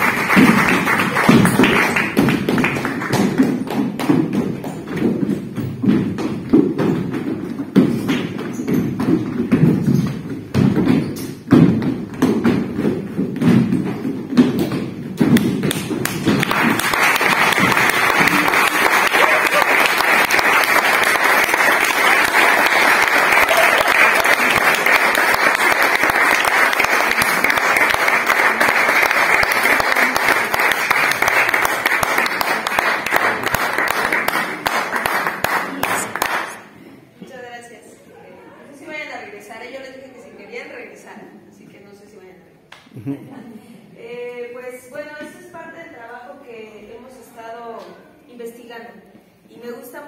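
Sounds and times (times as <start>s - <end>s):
audience applause: 0.0s - 3.2s, 16.0s - 36.6s.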